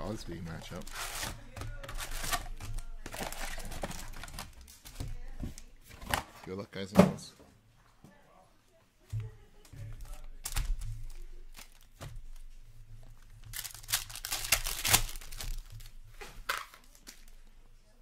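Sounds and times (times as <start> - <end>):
foil wrapper crinkling: 0.0 - 5.0, 10.0 - 12.5, 13.2 - 17.5.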